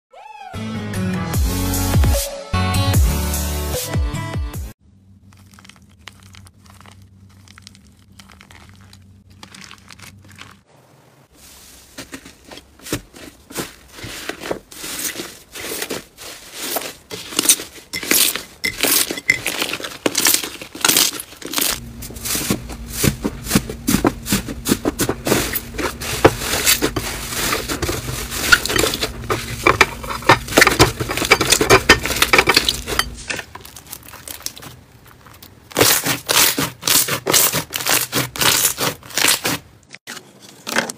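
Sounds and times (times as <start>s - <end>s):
slime crackling and squishing: 5.0s - 10.7s, 11.4s - 39.7s.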